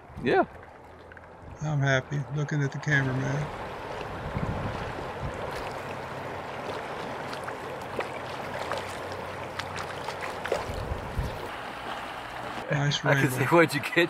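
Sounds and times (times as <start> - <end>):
river water rushing: 2.0 - 14.0
small ticks and splashes: 3.5 - 12.6.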